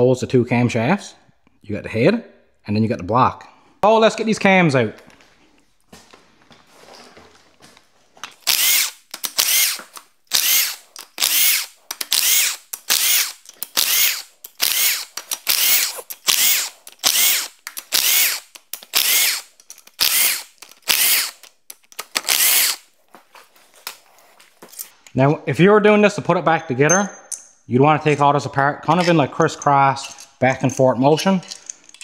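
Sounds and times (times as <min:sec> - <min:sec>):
cordless drill whirring: 0:08.4 - 0:21.5, 0:22.2 - 0:22.8.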